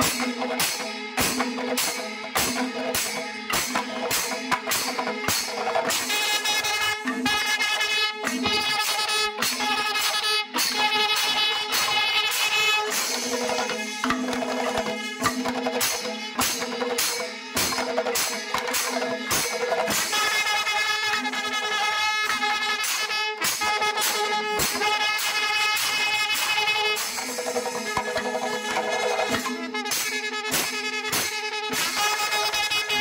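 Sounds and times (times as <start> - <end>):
small cymbals ringing: 0.0 - 20.8, 24.7 - 30.2
hand-beaten drums: 0.0 - 33.0.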